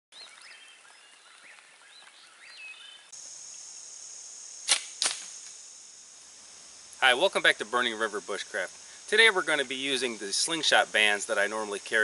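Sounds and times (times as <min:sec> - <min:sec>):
high insect trill: 0:00.6 - 0:12.0
slingshot bands cracking: 0:04.6 - 0:05.6.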